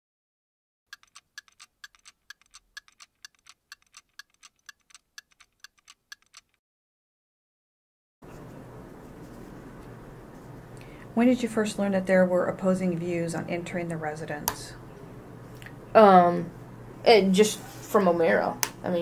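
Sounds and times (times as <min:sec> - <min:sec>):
clock ticking: 0:00.9 - 0:06.6.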